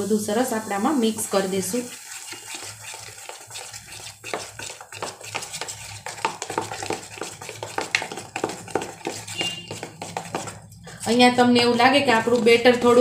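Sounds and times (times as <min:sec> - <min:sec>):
batter beaten by hand wet slaps: 0:02.5 - 0:10.8.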